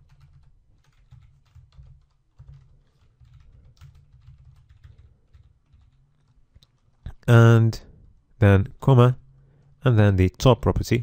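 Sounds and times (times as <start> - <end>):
faint keyboard typing: 0.0 - 7.3.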